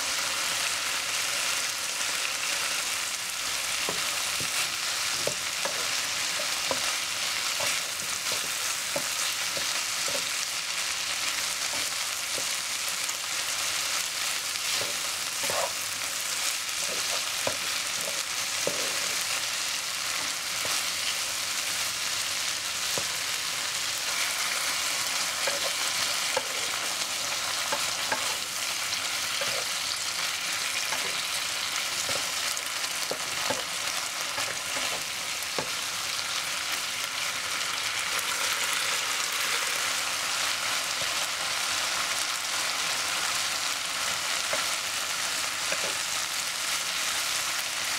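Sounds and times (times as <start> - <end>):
vegetables sizzling in a wok: 0.0 - 47.9
spatula scraping a pan: 3.8 - 21.2, 22.9 - 35.8.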